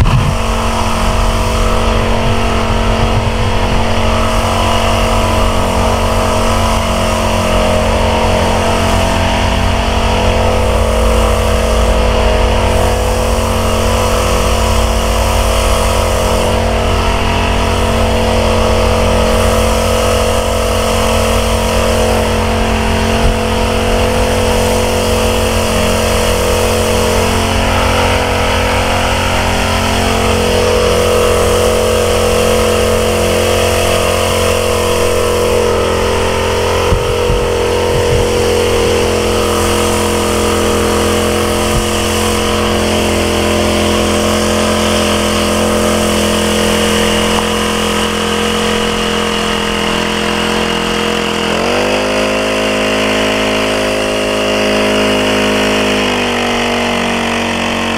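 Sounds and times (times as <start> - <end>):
small sprayer engine running: 0.0 - 57.9.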